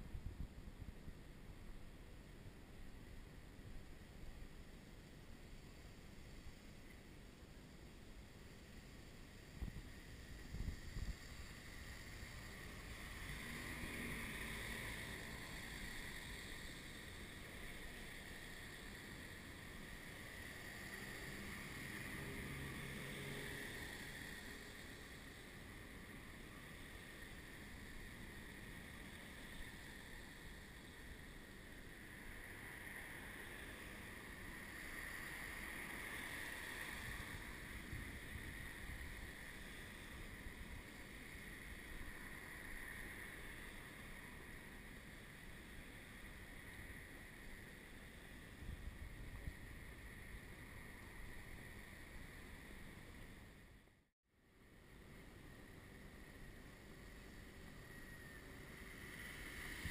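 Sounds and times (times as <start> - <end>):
wind rumble on microphone: 0.0 - 1.8, 9.4 - 19.8, 26.0 - 44.7, 48.3 - 53.5, 58.8 - 59.9.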